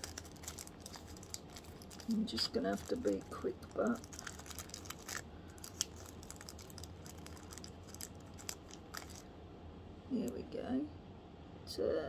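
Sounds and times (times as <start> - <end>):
plastic packet crinkling: 0.0 - 9.3.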